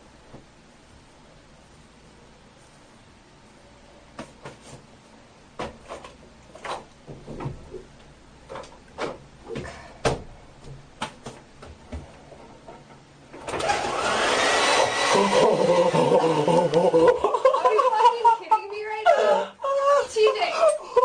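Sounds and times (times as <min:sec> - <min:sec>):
hair dryer running: 0:13.4 - 0:17.1.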